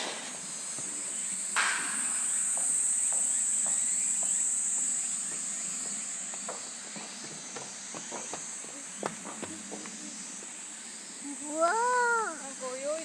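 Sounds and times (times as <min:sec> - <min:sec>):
cicadas shrilling: 0:00.0 - 0:13.0
faint footsteps: 0:02.2 - 0:10.5.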